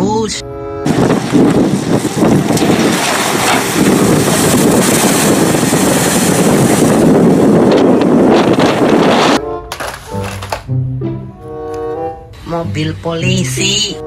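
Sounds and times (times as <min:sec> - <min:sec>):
wind buffeting microphone: 0:00.8 - 0:09.4.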